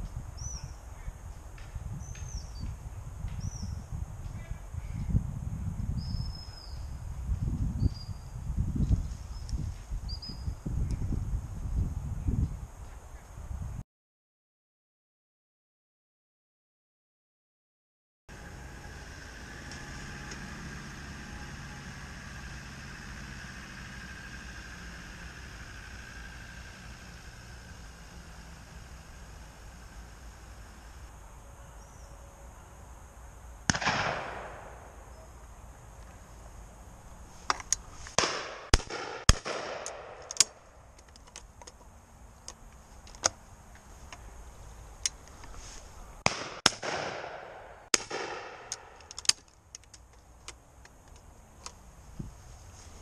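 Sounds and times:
gunshot echo: 0:33.7 - 0:34.9, 0:38.2 - 0:40.3, 0:46.2 - 0:49.0
shotguns firing: 0:33.7 - 0:34.9, 0:38.2 - 0:40.5, 0:46.2 - 0:49.0.

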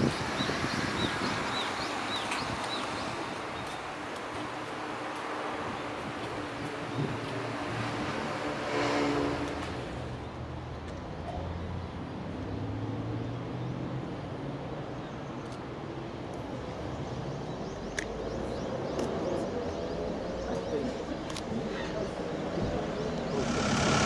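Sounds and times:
faint sharp clicks: 0:21.3 - 0:21.5.

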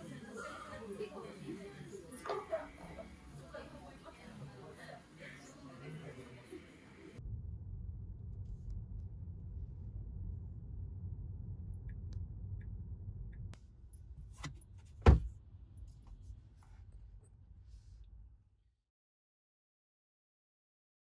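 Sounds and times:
car cabin road rumble: 0:07.2 - 0:16.2.

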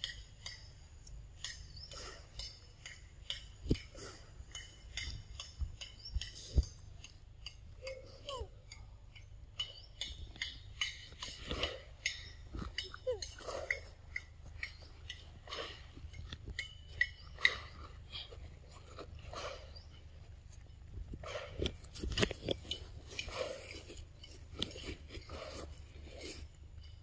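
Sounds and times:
monkey chewing mango: 0:00.3 - 0:27.0.

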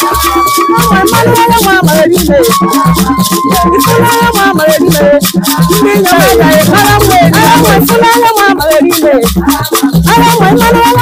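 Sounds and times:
upbeat dance music: 0:01.7 - 0:09.4.

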